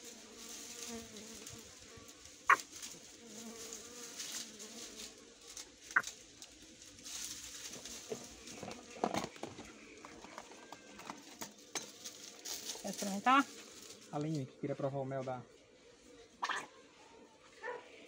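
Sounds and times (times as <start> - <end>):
bees buzzing: 0.0 - 14.1.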